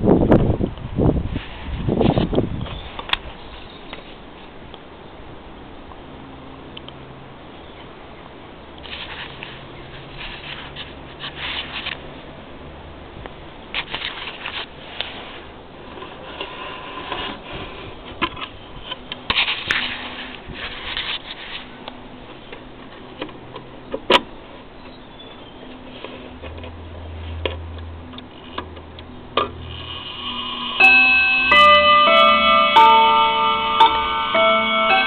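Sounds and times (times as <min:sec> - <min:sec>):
rustling and scraping handling: 0:08.8 - 0:12.1, 0:13.7 - 0:23.7, 0:24.8 - 0:27.8.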